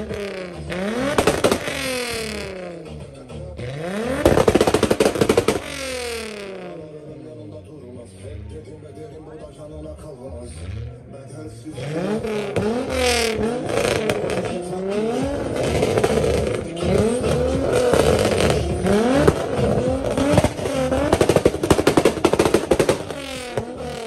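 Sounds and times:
exhaust pops and crackles: 0.0s - 6.8s, 11.9s - 24.0s
car engine revving: 0.0s - 7.6s, 9.3s - 24.0s.

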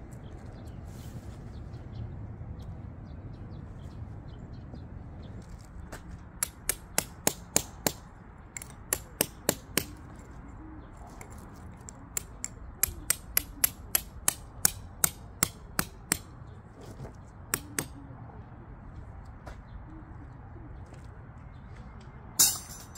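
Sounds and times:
tent peg being hammered: 6.4s - 8.0s, 8.6s - 10.0s, 12.2s - 16.3s, 17.5s - 17.9s.

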